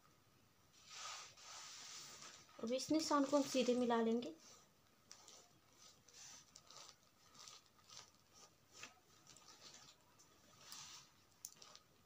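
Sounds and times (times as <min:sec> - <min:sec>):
chalk scratching on fabric: 0:00.8 - 0:02.5, 0:03.1 - 0:07.6.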